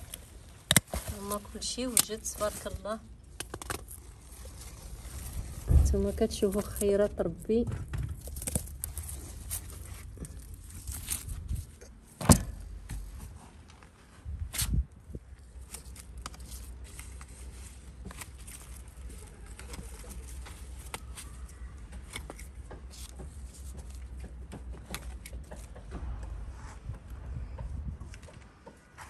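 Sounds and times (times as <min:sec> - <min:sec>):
leaves rustling: 0:00.0 - 0:07.2.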